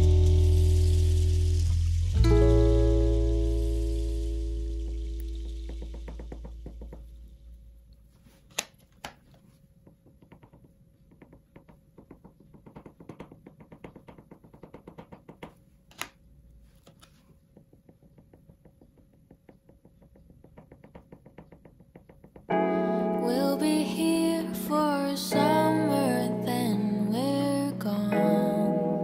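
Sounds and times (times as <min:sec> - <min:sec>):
background music: 0:00.0 - 0:05.7, 0:22.5 - 0:29.0
pastel knocks on paper: 0:09.8 - 0:15.6, 0:17.5 - 0:22.5
pastel ticking on paper: 0:09.8 - 0:15.6.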